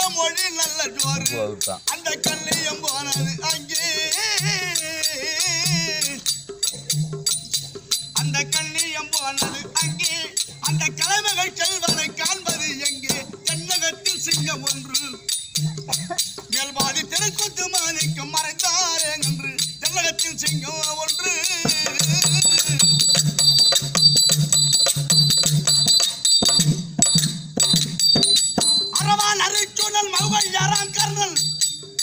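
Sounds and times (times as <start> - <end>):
person singing: 0.0 - 6.3, 15.9 - 23.0
hand drums: 0.0 - 32.0
jingling metal percussion: 0.0 - 32.0.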